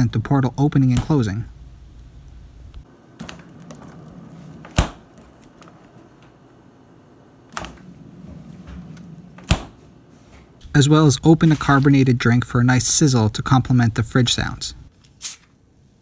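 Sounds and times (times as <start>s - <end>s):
refrigerator door thud: 4.6s - 5.2s, 9.4s - 9.8s
refrigerator door opening: 7.5s - 9.9s.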